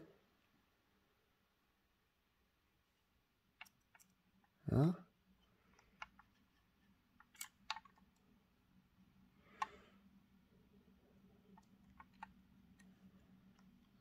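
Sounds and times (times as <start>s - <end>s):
plastic model clicks and taps: 5.7s - 6.6s, 7.2s - 8.2s, 11.5s - 12.9s.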